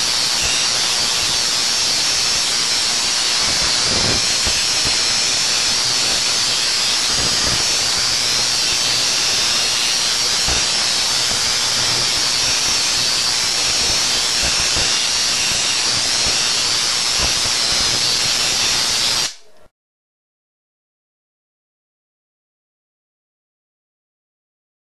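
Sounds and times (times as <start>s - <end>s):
tesla coil spark discharge: 0.0s - 19.4s.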